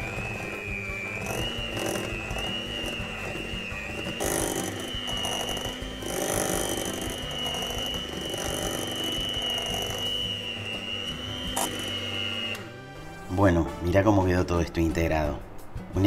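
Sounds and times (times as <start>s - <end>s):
electric mixer whining: 0.0s - 13.1s.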